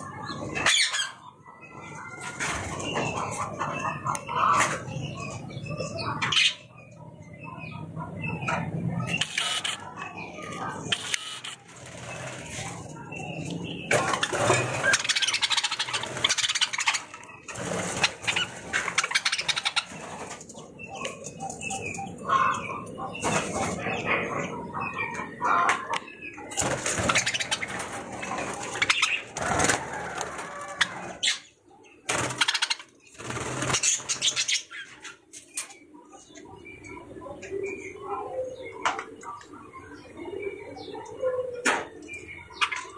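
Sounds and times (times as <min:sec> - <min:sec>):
budgerigars chirping and chattering: 0:00.0 - 0:42.9
loud rustling bursts: 0:26.5 - 0:30.8.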